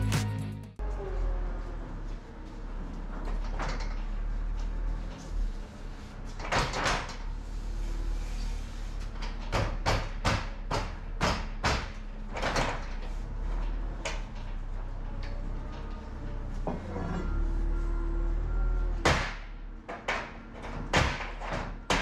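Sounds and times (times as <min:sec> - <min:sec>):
trailer frame knocks and rattles: 0:19.0 - 0:22.0.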